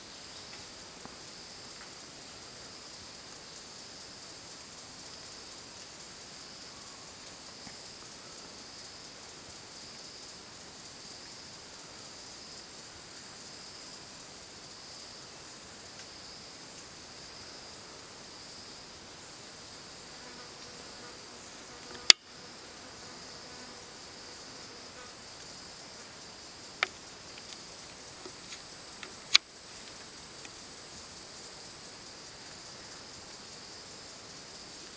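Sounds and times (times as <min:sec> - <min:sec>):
high-pitched insect chorus: 0:00.0 - 0:34.9.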